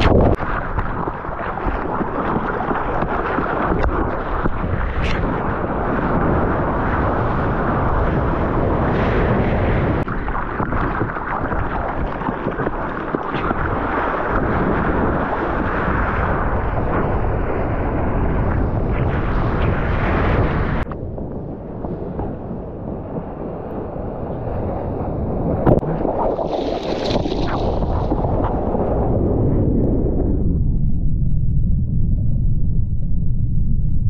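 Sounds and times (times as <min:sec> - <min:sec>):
wind buffeting microphone: 0:00.0 - 0:34.0
sharp splashes: 0:25.7 - 0:28.6.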